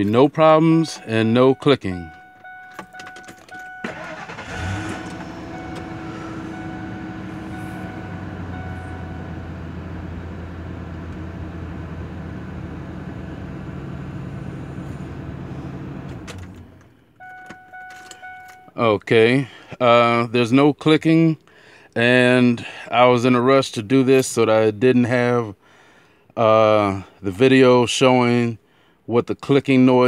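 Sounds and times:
dashboard warning chime: 0.0s - 9.7s, 17.2s - 18.8s
car engine idling: 1.5s - 18.6s
car engine cranking and starting: 1.5s - 18.7s.

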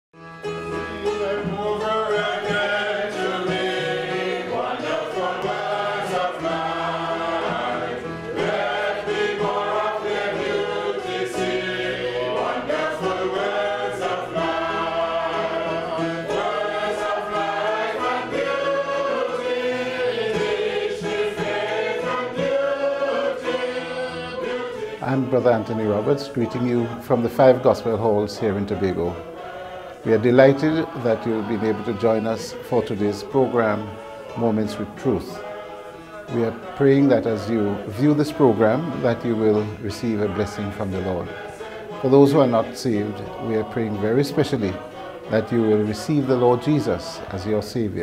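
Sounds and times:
choir singing gospel music: 0.2s - 48.0s.

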